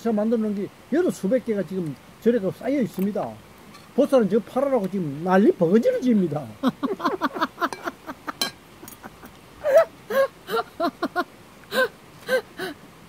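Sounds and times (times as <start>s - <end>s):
person laughing behind hand: 6.6s - 12.8s.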